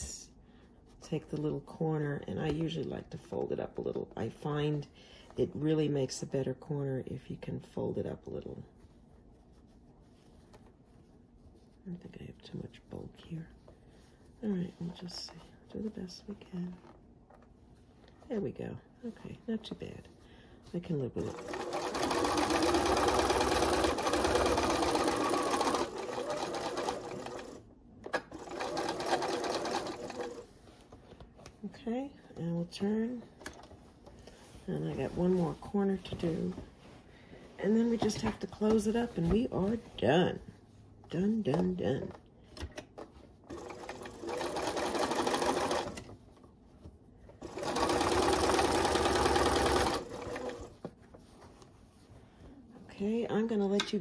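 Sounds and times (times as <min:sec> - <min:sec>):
sewing machine stitching: 0:21.2 - 0:30.5, 0:43.5 - 0:46.1, 0:47.4 - 0:50.8.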